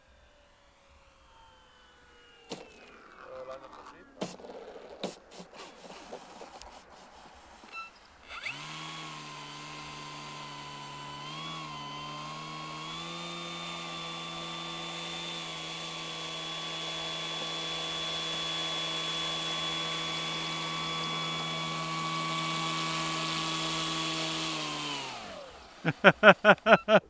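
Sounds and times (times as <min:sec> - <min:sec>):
model plane motor whine: 0:00.0 - 0:26.3
man talking: 0:03.2 - 0:04.7.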